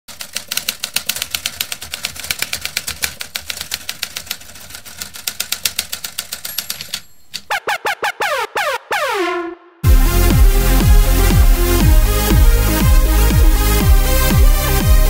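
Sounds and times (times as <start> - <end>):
typewriter keys clacking: 0.1 - 7.5
stuttering electronic tones: 7.5 - 11.6.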